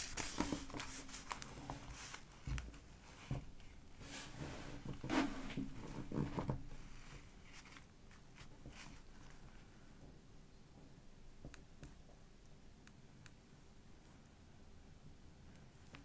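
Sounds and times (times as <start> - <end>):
journal pages turning: 0.0 - 2.8, 7.4 - 9.4.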